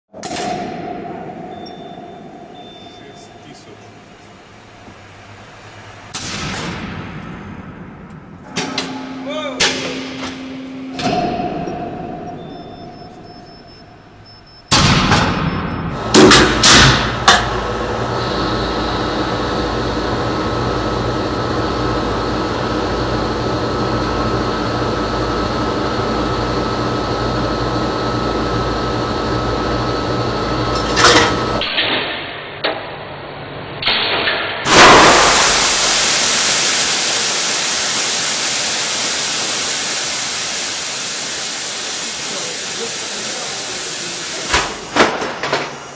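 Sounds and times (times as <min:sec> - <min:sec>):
loud machinery clunks: 0:00.1 - 0:03.2, 0:06.1 - 0:17.7, 0:30.7 - 0:32.8, 0:33.8 - 0:36.0, 0:44.2 - 0:45.9
machinery hum: 0:00.1 - 0:45.9
faint high whine: 0:01.1 - 0:06.1, 0:08.6 - 0:14.7
loud hiss: 0:34.7 - 0:45.9.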